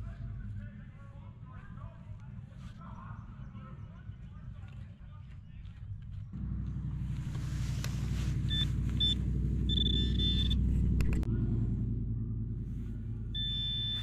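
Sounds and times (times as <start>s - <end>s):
low engine-like rumble: 0.0s - 14.0s
high electronic beeps: 8.5s - 10.6s, 13.4s - 14.0s.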